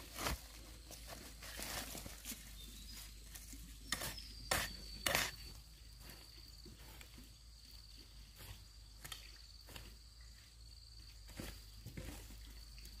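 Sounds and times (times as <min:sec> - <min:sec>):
high-pitched insect trill: 0:02.6 - 0:12.9
hoe chopping into dirt: 0:03.9 - 0:05.5.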